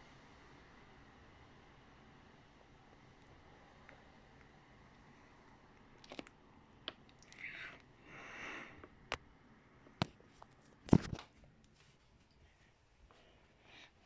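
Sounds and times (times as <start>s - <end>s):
soft rustles: 10.0s - 14.0s.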